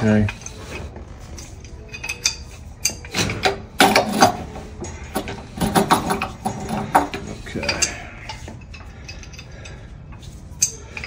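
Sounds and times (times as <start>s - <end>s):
pipe wrench clinking on metal valve: 1.9s - 9.8s, 10.6s - 11.0s.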